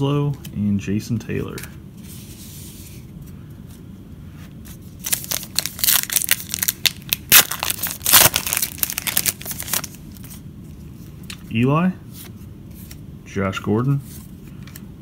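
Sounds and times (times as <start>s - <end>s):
foil wrapper tearing and crinkling: 5.0s - 10.3s.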